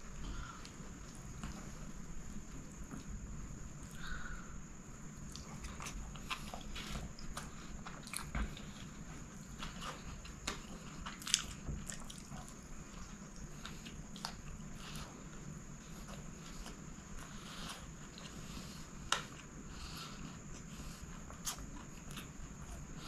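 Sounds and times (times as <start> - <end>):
close-up chewing: 5.2 - 23.0.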